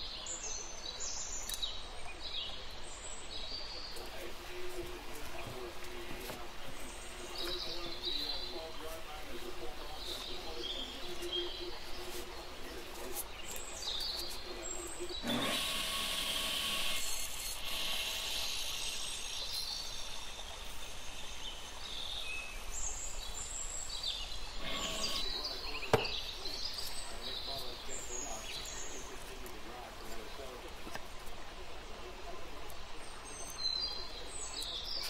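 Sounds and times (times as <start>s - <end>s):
birds chirping: 0.0s - 35.0s
sharp knock: 25.9s - 26.2s.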